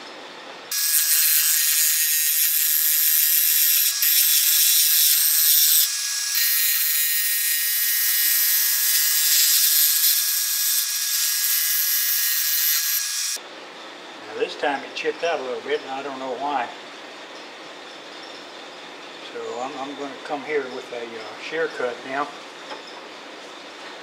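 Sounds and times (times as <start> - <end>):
gouge cutting wood on lathe: 0.7 - 13.2.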